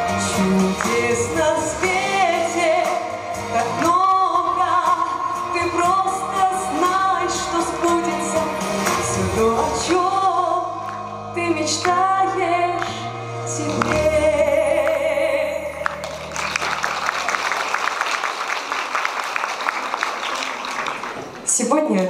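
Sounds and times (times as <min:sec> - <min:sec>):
woman singing into microphone: 0:00.0 - 0:16.0
audience applauding: 0:15.8 - 0:22.0.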